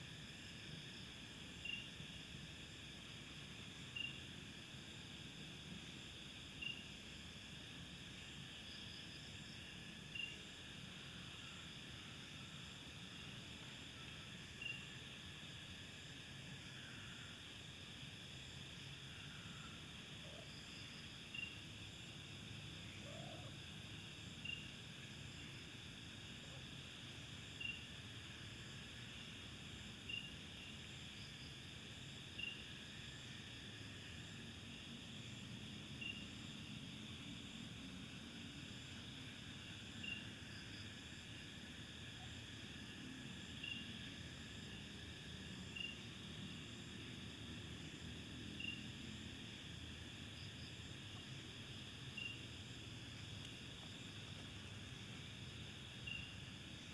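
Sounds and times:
crickets buzzing: 0.0 - 56.9
short high insect chirp: 52.1 - 52.6.

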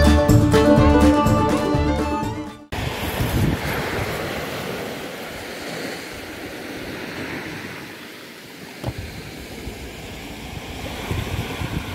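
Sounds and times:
waves washing up pebbly shore: 2.7 - 11.9
wind on microphone: 2.7 - 11.9
brief thump: 8.8 - 9.1.

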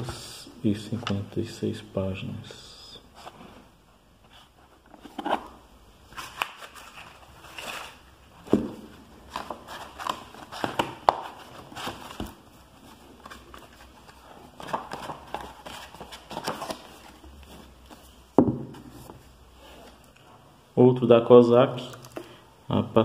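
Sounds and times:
paper and book cover rustling: 4.2 - 20.0
heavy book thump: 18.4 - 18.9.

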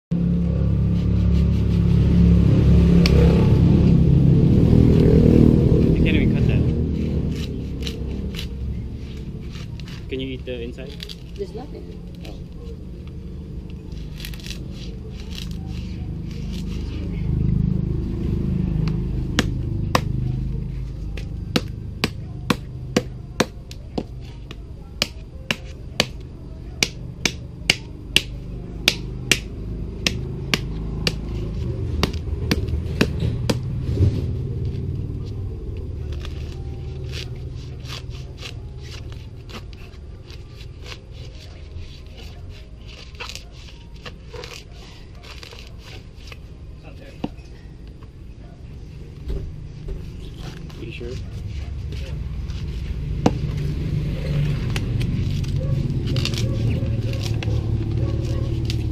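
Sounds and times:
knife striking coconut shell: 21.2 - 24.2, 26.8 - 31.4.

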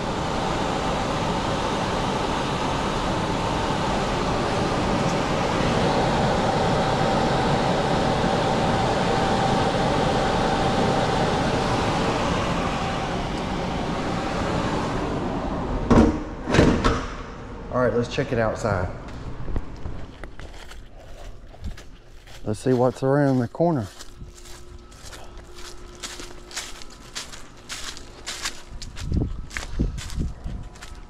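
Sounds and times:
air blower running: 0.0 - 31.0.

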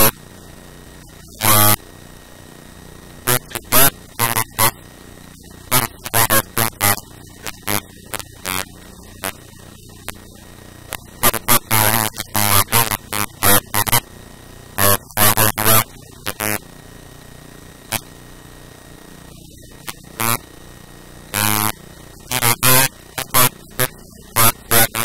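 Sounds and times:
steady electrical hum: 0.0 - 25.0
person's voice in broken bursts: 3.3 - 4.8, 5.7 - 8.6, 11.2 - 14.0, 14.8 - 16.6, 22.3 - 25.0.

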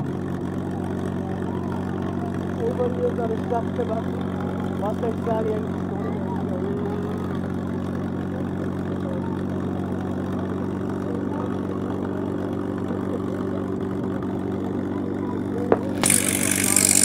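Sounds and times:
propeller plane engine idling: 0.0 - 17.0.

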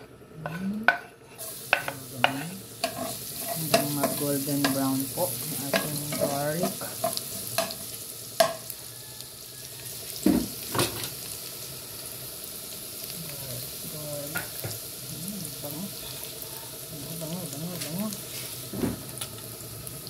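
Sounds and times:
fork scraping a pan: 0.4 - 4.9
garlic sizzling in hot oil: 0.4 - 20.0.

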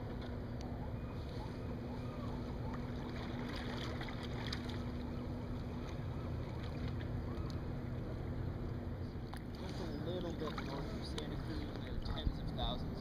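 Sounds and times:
low steady hum: 0.0 - 13.0
water lapping: 0.1 - 13.0
paddle splashes: 2.6 - 7.2, 9.3 - 12.2.

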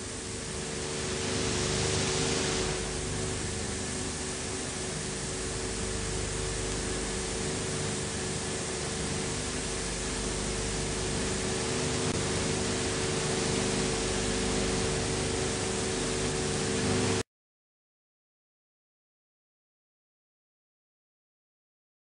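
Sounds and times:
constant low hum: 0.0 - 17.2
hiss and static: 0.0 - 17.2.

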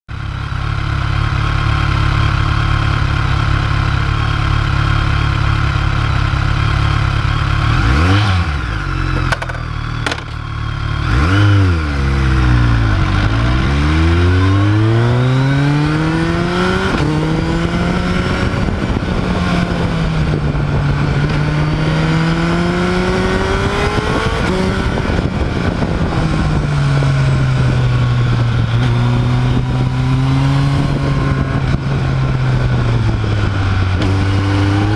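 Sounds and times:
motorcycle engine: 0.1 - 34.9
wind rush: 11.1 - 34.9.

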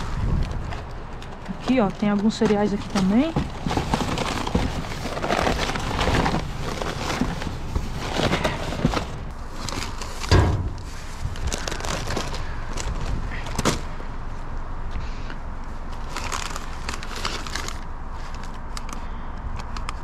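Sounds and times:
packages and wrappers rustling: 0.0 - 14.0, 15.8 - 19.1
thump in cardboard box: 10.3 - 10.8.

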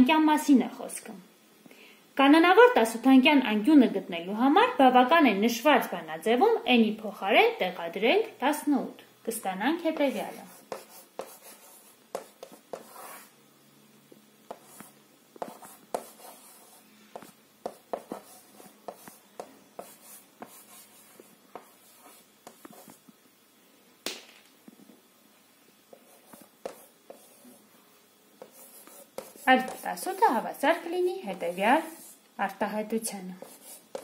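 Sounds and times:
chalk tapping and scratching: 9.9 - 13.4, 14.5 - 23.1, 25.9 - 27.6, 28.4 - 30.4, 31.2 - 32.2, 33.4 - 34.0.

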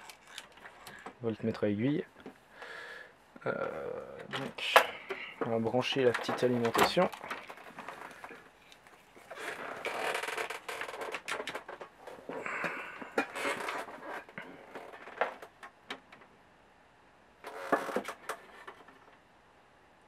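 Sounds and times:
handling rustling: 4.2 - 15.5.

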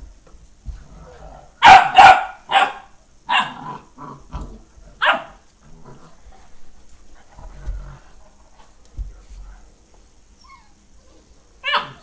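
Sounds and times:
dogs barking: 1.6 - 3.8, 5.0 - 5.4, 11.6 - 12.0.

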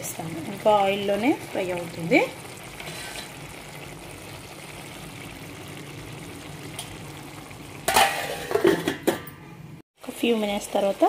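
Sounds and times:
curry sizzling in a frying pan: 0.0 - 8.9, 10.0 - 11.0
steel lid clattering: 2.8 - 3.4, 7.8 - 9.6.

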